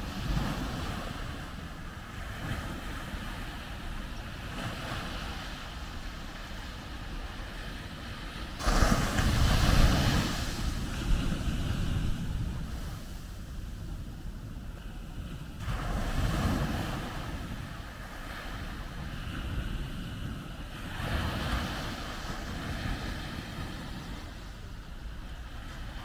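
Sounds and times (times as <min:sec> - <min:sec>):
waves breaking on sandy beach: 0:00.0 - 0:26.0.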